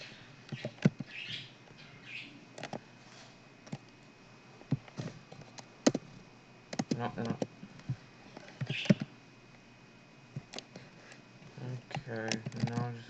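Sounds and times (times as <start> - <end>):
mouse and keyboard clicks: 8.5 - 9.1.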